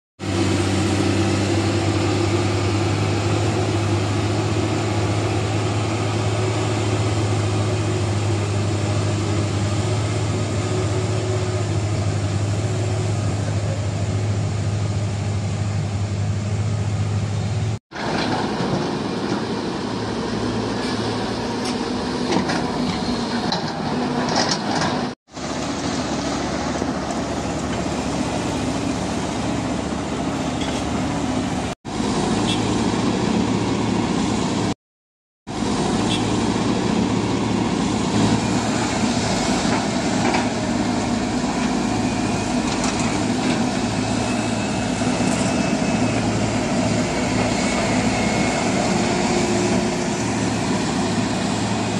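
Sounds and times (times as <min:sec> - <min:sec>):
diesel truck engines droning: 0:00.2 - 0:34.8, 0:35.5 - 0:51.9
excavator diesel engine: 0:00.2 - 0:34.8, 0:35.5 - 0:51.9
machinery noise with knocks: 0:17.9 - 0:19.8, 0:20.7 - 0:28.1, 0:30.3 - 0:31.0, 0:35.5 - 0:51.9.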